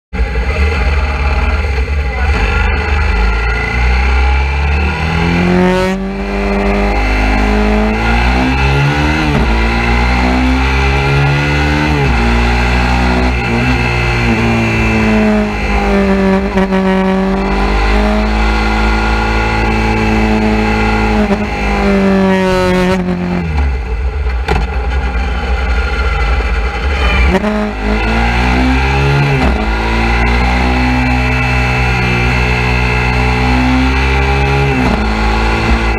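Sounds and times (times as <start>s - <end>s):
motorcycle engine revving: 0.2s - 35.9s.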